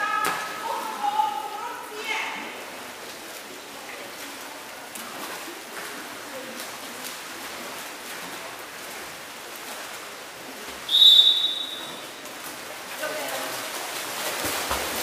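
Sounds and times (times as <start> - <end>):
indoor pool hall wash: 0.0 - 15.0
water splashing: 0.0 - 15.0
referee's whistle blast: 10.9 - 12.0.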